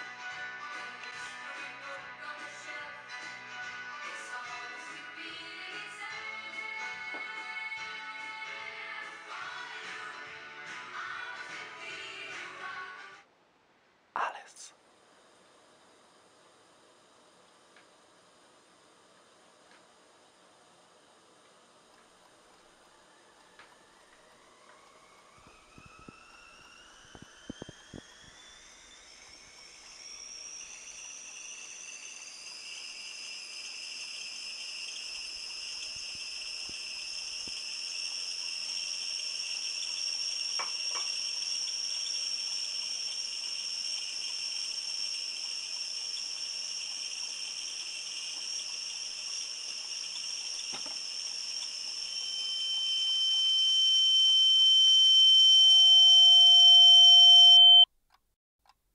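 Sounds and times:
high electronic whine: 22.8 - 57.9
piercing pure tone: 24.5 - 57.9.

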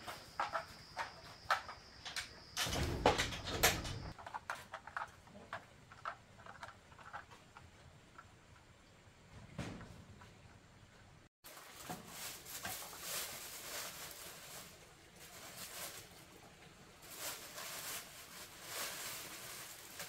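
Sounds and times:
plastic bag rustling: 11.4 - 20.0.

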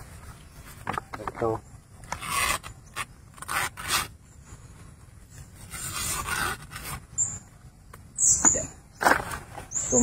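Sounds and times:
leaves rustling and scraping: 0.0 - 10.0.

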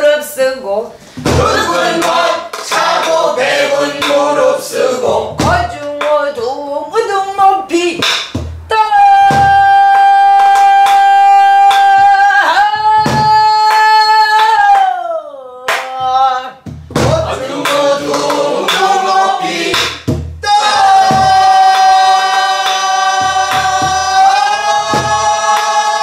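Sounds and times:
barrel drum beaten with stick: 1.2 - 6.2, 8.0 - 9.8, 12.6 - 13.9, 16.6 - 26.0
several voices singing together: 1.3 - 5.8, 17.0 - 26.0.

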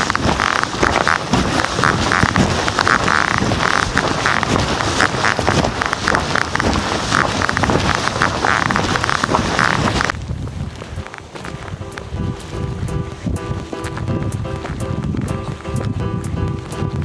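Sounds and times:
footsteps crunching in snow: 0.0 - 16.9
constant rough noise: 0.0 - 17.0.

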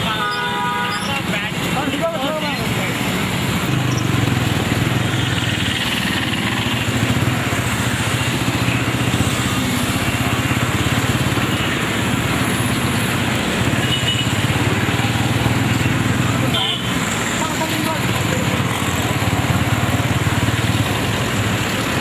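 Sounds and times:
vehicle engines running: 0.0 - 22.0.

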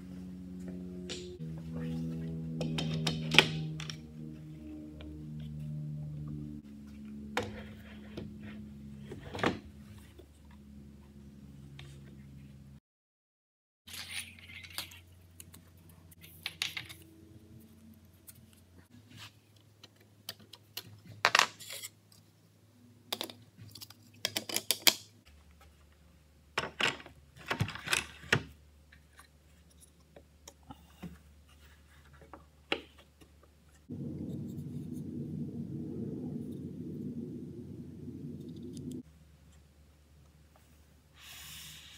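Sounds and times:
steady low hum: 0.0 - 12.8, 33.6 - 41.2
tool parts clicking and scraping: 13.9 - 17.1.

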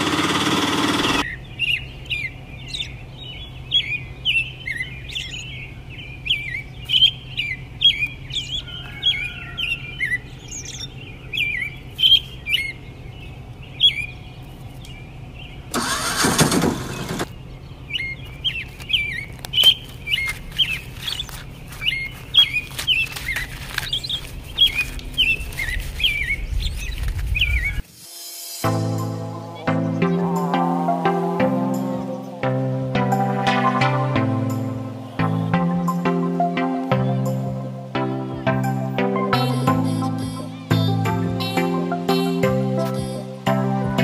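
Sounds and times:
loud burst of noise: 0.0 - 1.2, 15.7 - 17.3
small birds chirping: 0.0 - 16.0, 16.7 - 27.8, 28.6 - 44.0.

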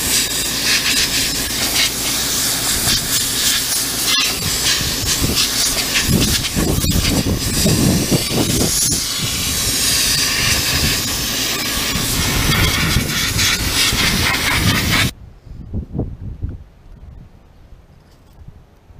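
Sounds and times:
sandblaster hissing on metal: 0.0 - 15.1.

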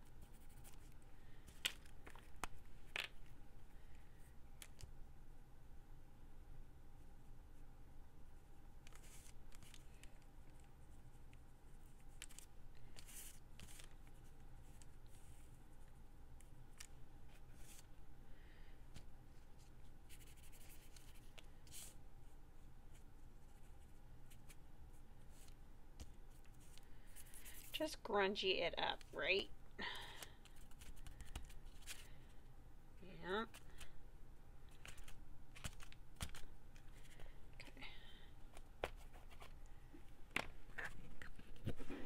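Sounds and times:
low room hum: 0.0 - 42.0.

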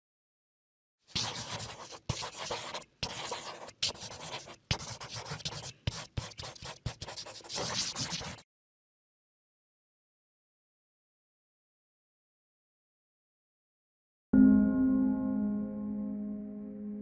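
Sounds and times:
marker scratching on paper: 1.1 - 8.4.

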